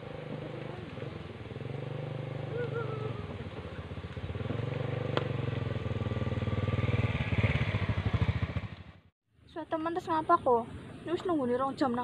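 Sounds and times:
motorcycle engine running: 0:00.0 - 0:09.1.

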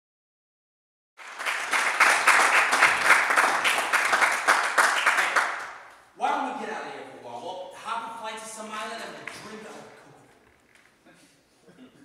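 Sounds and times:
audience applauding: 0:01.2 - 0:05.9.

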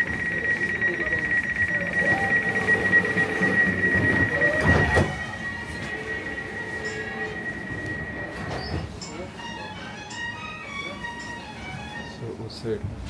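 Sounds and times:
high rapid door warning beeps: 0:00.0 - 0:09.4.

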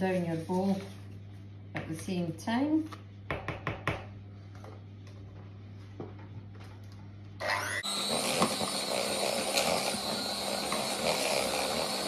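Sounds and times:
electric hand mixer running: 0:07.4 - 0:12.0
beaters whisking batter in bowl: 0:07.8 - 0:12.0.

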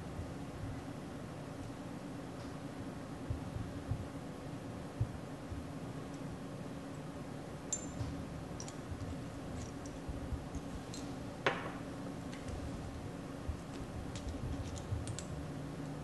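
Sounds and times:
low room hum: 0:00.0 - 0:16.0
glass clinking: 0:07.7 - 0:08.8.

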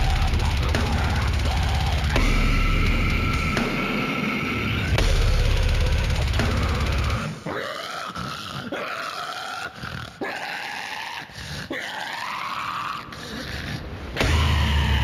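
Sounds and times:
heavy guitar and drum band: 0:00.0 - 0:07.5, 0:14.2 - 0:15.0
sharp hits: 0:00.0 - 0:07.5
growled and screamed vocals: 0:00.0 - 0:15.0.

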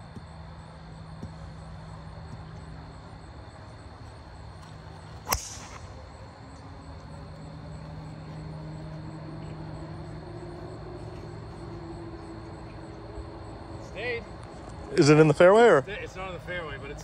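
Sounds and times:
distant engine drone: 0:00.0 - 0:17.0
golf club striking ball: 0:05.2 - 0:06.0.

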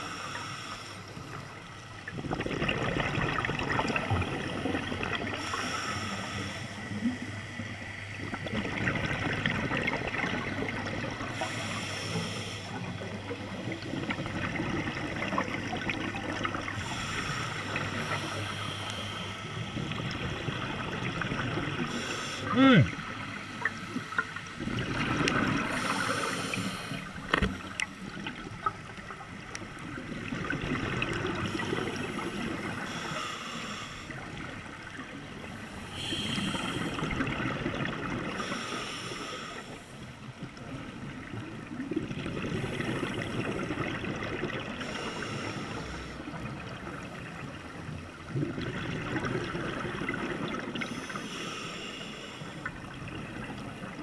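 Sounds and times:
regulator inhale hiss: 0:00.0 - 0:01.2, 0:05.4 - 0:07.1, 0:11.3 - 0:12.9, 0:16.8 - 0:19.7, 0:21.9 - 0:22.5, 0:25.7 - 0:27.5, 0:31.4 - 0:34.4, 0:35.6 - 0:37.1, 0:38.4 - 0:40.1, 0:44.8 - 0:46.4, 0:50.8 - 0:52.8
exhaled bubbles gurgling: 0:00.0 - 0:54.0.

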